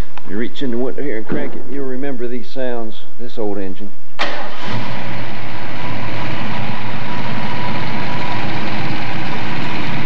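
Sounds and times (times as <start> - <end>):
car engine running: 4.2 - 10.0.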